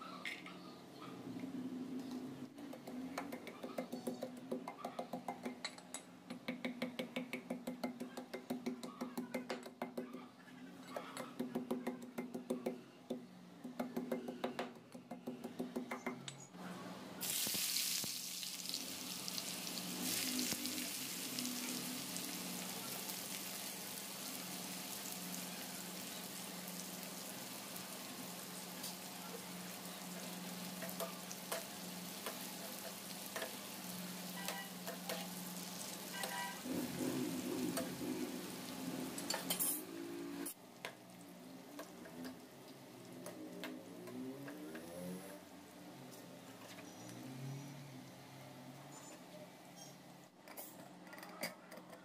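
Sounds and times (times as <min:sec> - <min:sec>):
onions sizzling in hot oil: 0:17.2 - 0:39.8.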